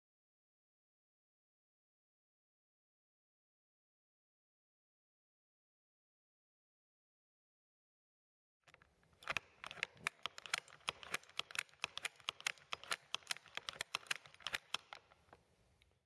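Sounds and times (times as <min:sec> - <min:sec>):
ratchet spanner clicking: 0:09.2 - 0:15.0.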